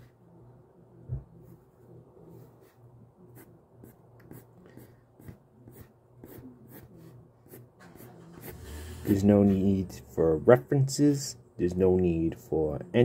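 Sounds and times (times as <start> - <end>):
pencil scratching on paper: 2.3 - 9.8.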